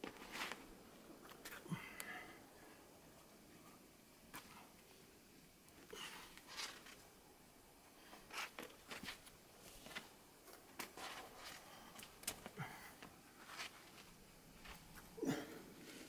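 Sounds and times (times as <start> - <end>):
shoes and hands scuffing rock: 13.4 - 15.1.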